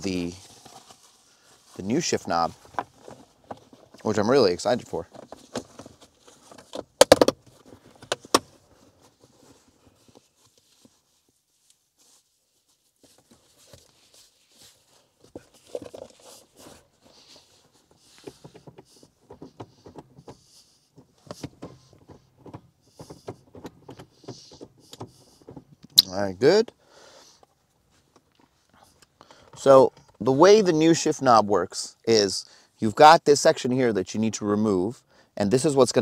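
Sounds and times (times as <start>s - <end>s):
leather rustling: 0.0s - 4.2s, 5.0s - 25.8s.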